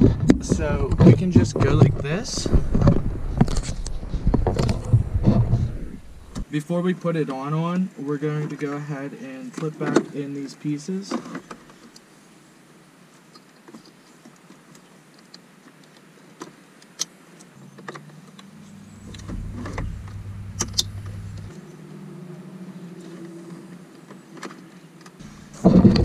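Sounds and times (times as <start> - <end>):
low steady hum: 0.2 - 6.4, 18.2 - 23.6, 25.2 - 26.0.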